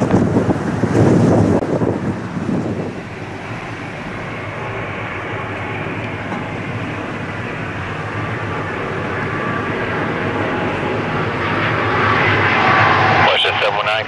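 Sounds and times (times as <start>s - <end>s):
jet engines roaring: 0.0s - 14.0s
faint high engine whine: 1.6s - 14.0s.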